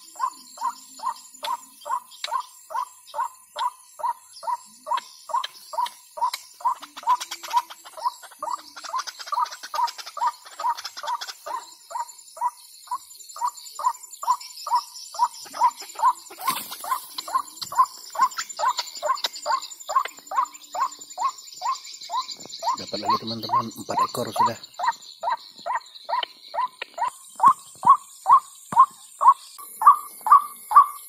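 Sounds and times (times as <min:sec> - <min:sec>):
faint insects trilling: 0:00.0 - 0:31.0.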